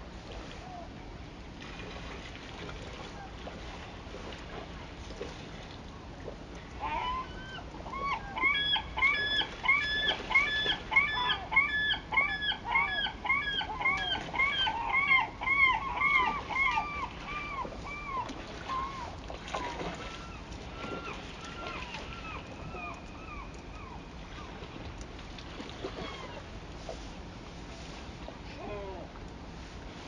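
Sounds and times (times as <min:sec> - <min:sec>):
gull calling: 0:06.8 - 0:24.6, 0:25.9 - 0:26.5.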